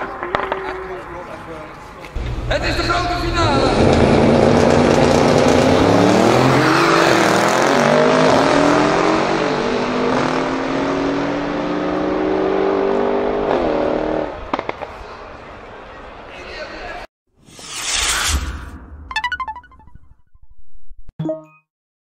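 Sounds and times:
cars accelerating with upshifts: 3.7s - 14.4s.

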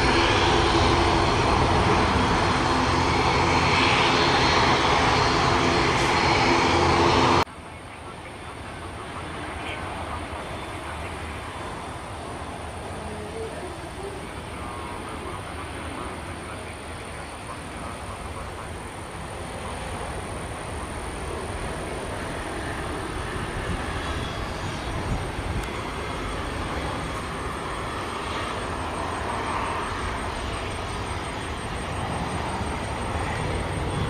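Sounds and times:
jet engines rushing: 0.0s - 34.0s.

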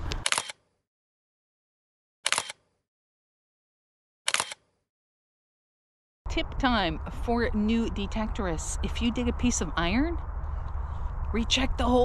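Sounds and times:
camera shutter click: 0.1s - 0.6s, 2.3s - 2.6s, 4.3s - 4.7s.

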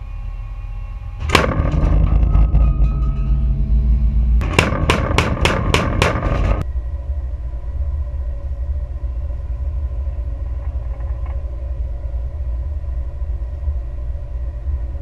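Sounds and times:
low rumble: 0.0s - 15.0s
naval gun firing: 4.4s - 6.6s.

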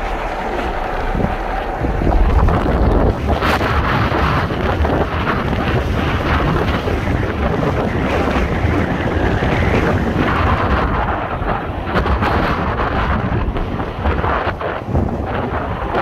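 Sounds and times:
waterfall rushing: 0.0s - 5.5s
wind buffeting microphone: 0.0s - 16.0s.

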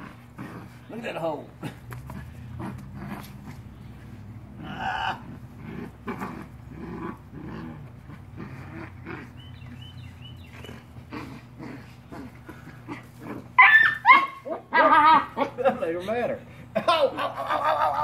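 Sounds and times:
puppy growling and grunting: 0.0s - 15.8s
puppy yipping: 13.6s - 15.4s.

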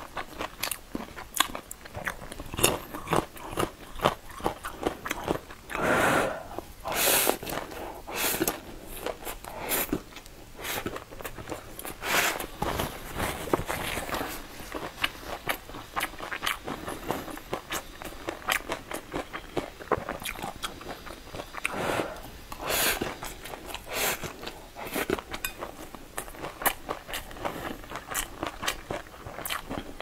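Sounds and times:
wet chewing with mouth clicks: 0.1s - 30.0s
slurping noodles: 21.6s - 25.2s.

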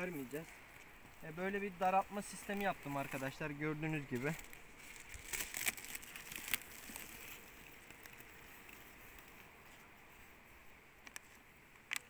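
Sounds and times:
faint steady hiss: 0.0s - 12.0s
bubble wrap crackling: 4.1s - 9.4s
small clicks: 11.0s - 12.0s.

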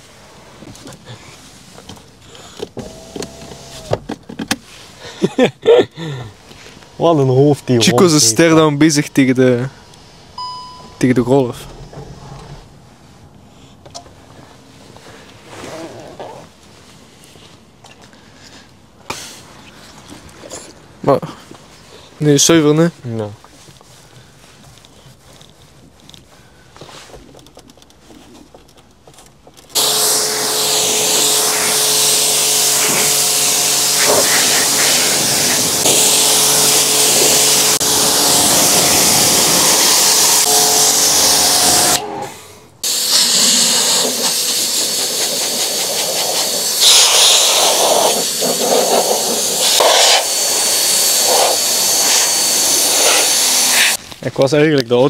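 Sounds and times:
air blower rushing: 2.7s - 4.0s, 29.7s - 54.0s
pressure washer spraying water: 29.8s - 42.0s, 42.8s - 54.0s
pump humming: 29.8s - 42.2s.

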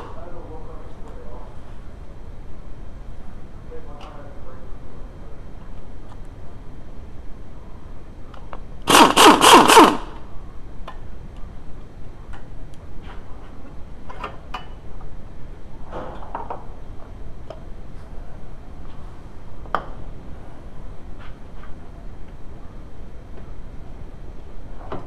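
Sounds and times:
impact wrench hammering: 8.9s - 10.1s.

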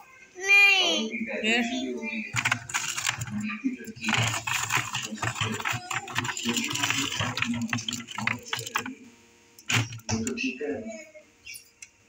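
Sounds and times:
containers clicking and rustling: 2.3s - 9.0s, 9.6s - 10.4s.

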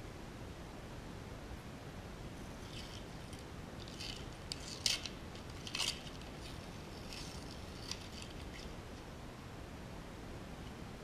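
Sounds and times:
paper peeling and rustling: 2.6s - 9.0s.

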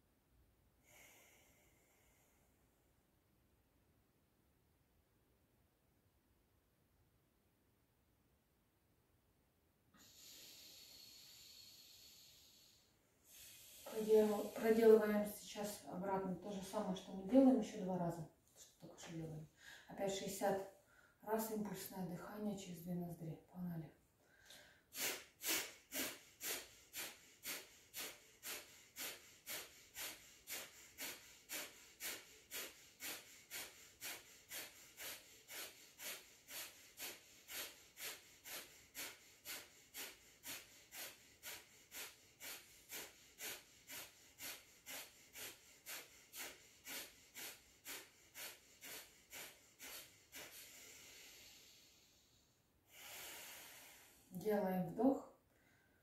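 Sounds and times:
soft long breath: 0.8s - 2.8s, 9.9s - 14.8s, 19.5s - 19.9s, 24.2s - 54.4s
rapid forceful nasal exhalations: 10.0s - 15.4s, 24.3s - 54.4s.

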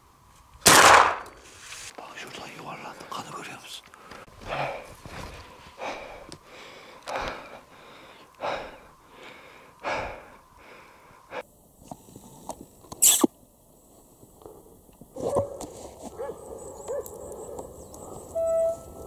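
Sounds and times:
man breathing heavily: 3.9s - 11.6s.

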